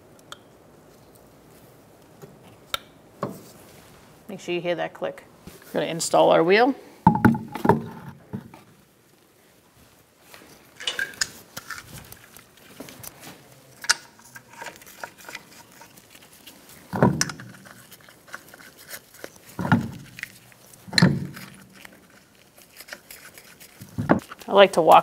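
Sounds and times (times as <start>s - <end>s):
metallic knocks: 7.1s - 8.2s.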